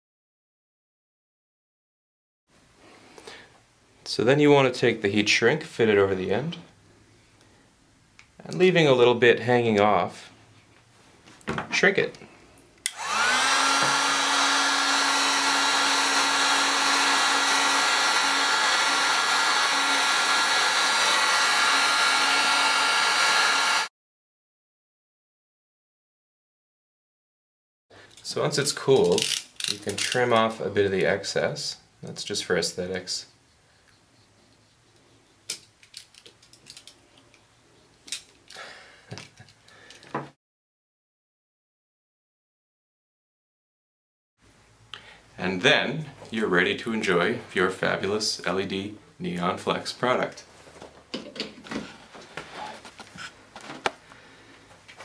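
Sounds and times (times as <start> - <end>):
heat gun switch click: 12.8 - 13.0
heat gun fan blowing: 12.8 - 23.9
small clicks and scrapes: 33.8 - 38.5.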